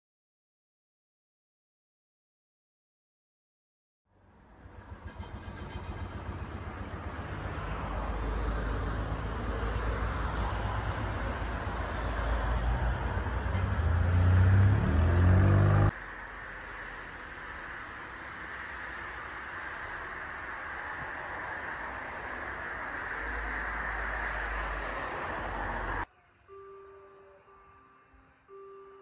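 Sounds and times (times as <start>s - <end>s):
vehicle engine approaching: 4.1s - 18.5s.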